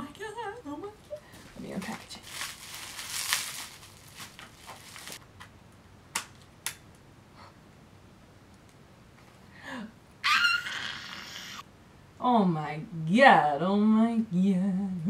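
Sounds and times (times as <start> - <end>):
plastic packaging crinkling: 1.3 - 5.2.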